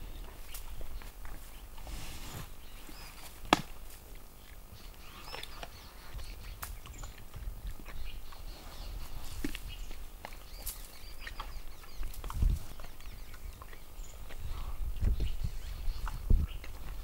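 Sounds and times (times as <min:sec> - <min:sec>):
boar crunching bones: 0:02.9 - 0:15.1
sharp bone crack: 0:03.5 - 0:03.8.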